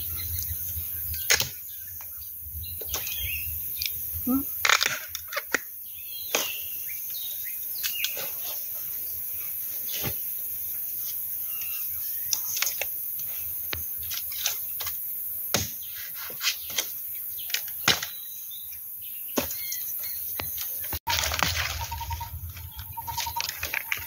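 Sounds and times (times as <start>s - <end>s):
bamboo snapping and cracking: 1.1s - 1.6s, 4.6s - 6.6s, 17.4s - 18.2s.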